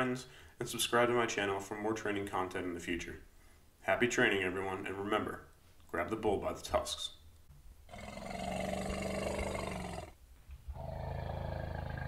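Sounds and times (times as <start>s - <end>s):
large animal roaring: 7.9s - 12.0s.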